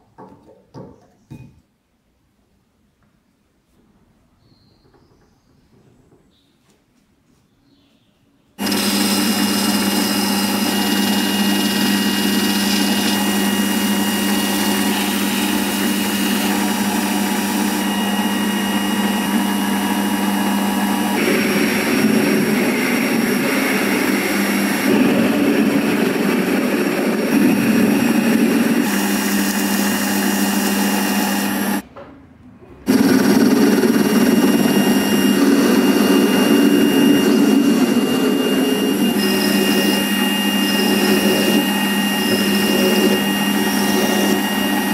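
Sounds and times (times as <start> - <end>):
metal lathe humming and whining: 8.6 - 31.8, 32.9 - 44.9.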